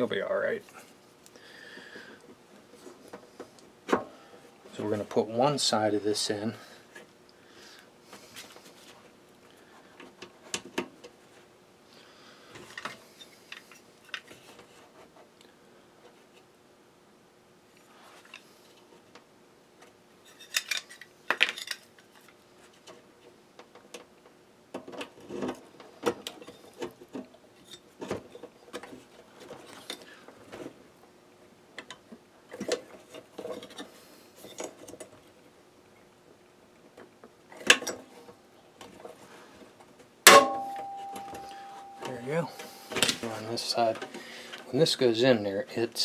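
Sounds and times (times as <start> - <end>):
metallic ringing: 40.3 - 42.9.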